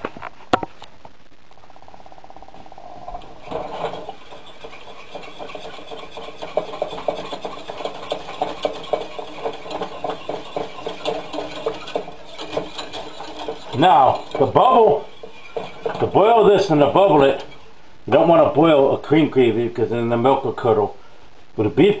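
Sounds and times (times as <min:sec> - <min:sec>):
whisk clinking against saucepan: 0:04.0 - 0:17.6.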